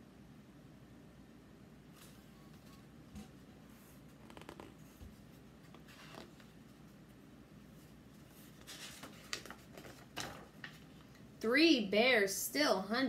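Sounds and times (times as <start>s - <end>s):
book pages rustling: 2.0s - 11.2s.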